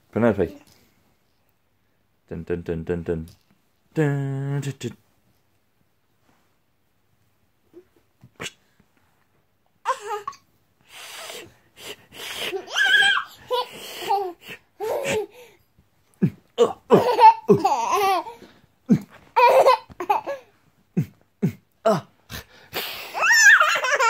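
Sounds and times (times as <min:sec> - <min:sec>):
toddler girl laughing: 0:12.5 - 0:15.3, 0:19.4 - 0:20.5, 0:23.2 - 0:24.0.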